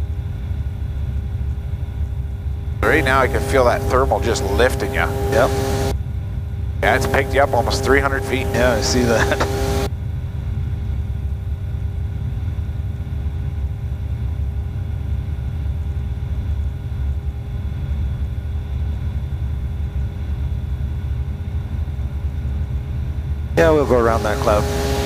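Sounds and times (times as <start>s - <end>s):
aircraft engine and propeller droning: 0.0s - 25.0s.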